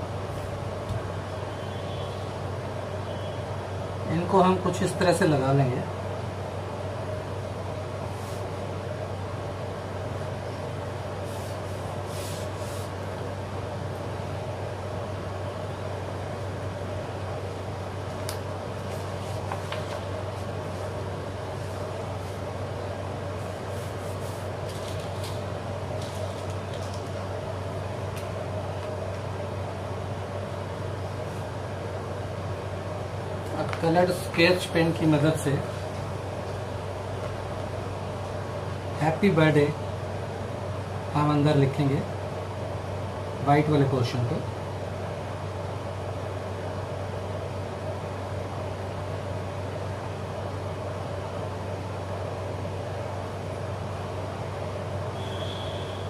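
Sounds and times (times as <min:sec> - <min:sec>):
appliance humming: 0:00.0 - 0:56.0
paper rustling: 0:18.8 - 0:20.9, 0:23.7 - 0:27.2.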